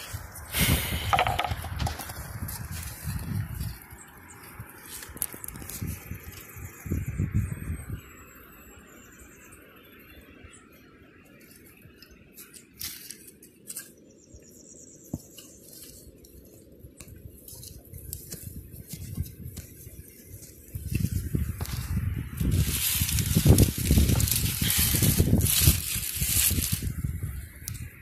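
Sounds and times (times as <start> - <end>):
wind on microphone rumbling: 0.0 - 4.0, 5.1 - 8.2, 18.0 - 28.0.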